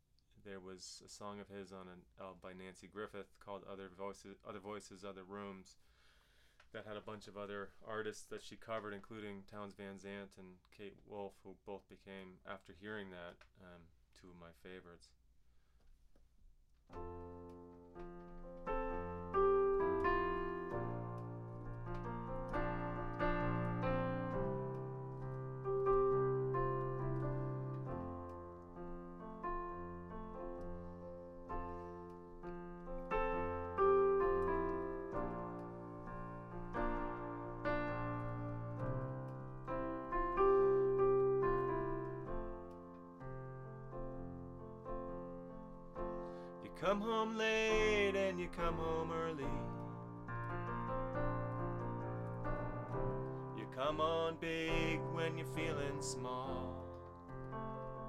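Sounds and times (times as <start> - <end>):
slow solo piano: 16.9 - 58.0.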